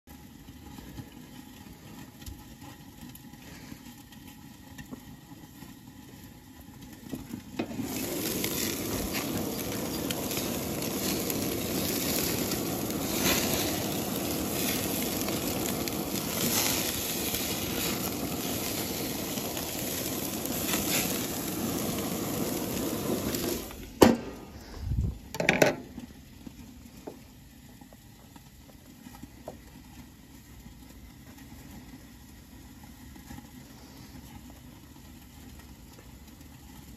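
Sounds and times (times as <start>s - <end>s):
steaks sizzling on grill: 0.1s - 24.7s
metal grill lid shutting: 25.3s - 25.9s.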